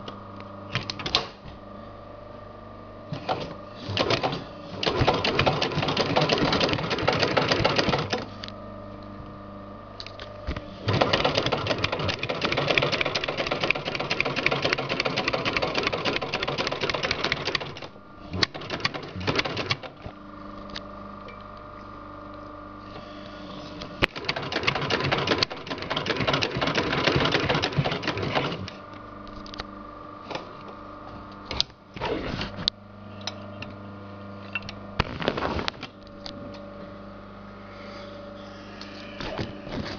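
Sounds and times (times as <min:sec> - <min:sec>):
steady motor hum: 0:00.0 - 0:39.9
sewing machine stitching: 0:03.2 - 0:08.3, 0:10.8 - 0:19.9, 0:24.1 - 0:28.8.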